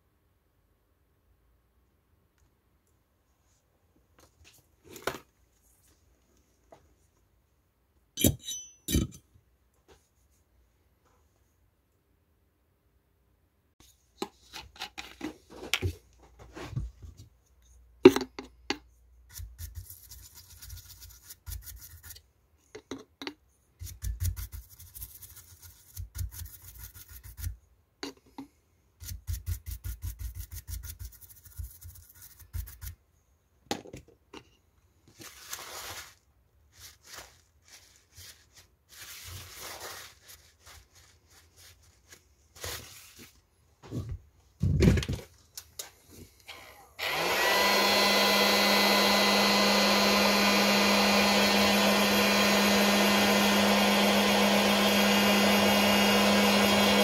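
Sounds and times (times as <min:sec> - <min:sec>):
brush scrubbing circuit board: 0:19.3 - 0:22.2, 0:23.8 - 0:27.6, 0:29.0 - 0:33.0
paper towel rubbing: 0:35.2 - 0:43.4.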